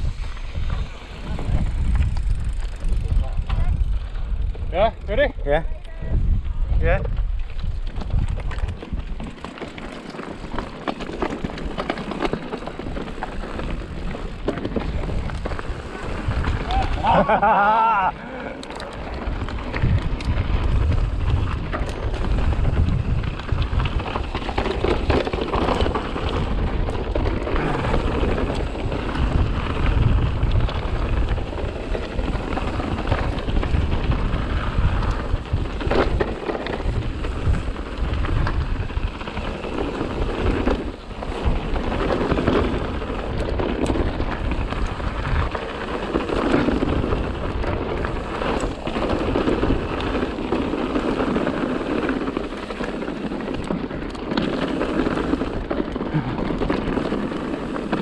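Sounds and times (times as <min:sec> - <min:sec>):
bike tyres on trail: 0:00.0 - 0:58.0
wind rumbling on microphone: 0:00.0 - 0:58.0
bike clattering: 0:07.4 - 0:58.0.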